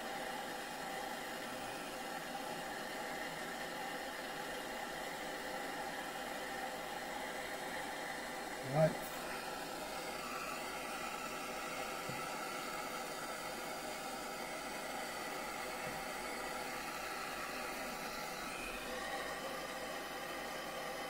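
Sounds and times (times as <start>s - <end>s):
gas torch flame hissing: 0.0s - 20.4s.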